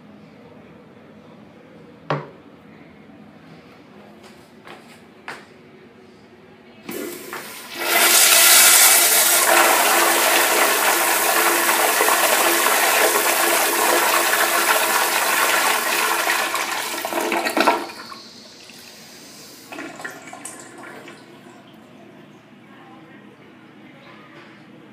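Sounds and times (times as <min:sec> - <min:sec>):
toilet flushing: 0:06.9 - 0:22.0.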